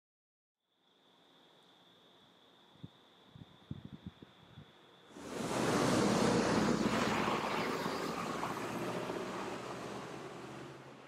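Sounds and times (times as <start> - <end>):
road vehicle passing: 5.1 - 11.0.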